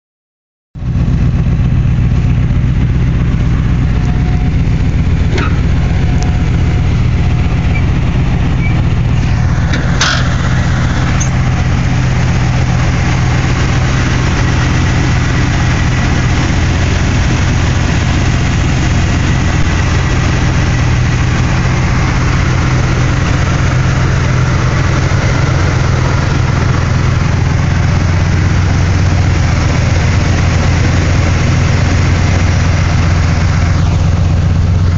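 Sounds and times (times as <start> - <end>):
car engine idling: 0.7 - 34.9.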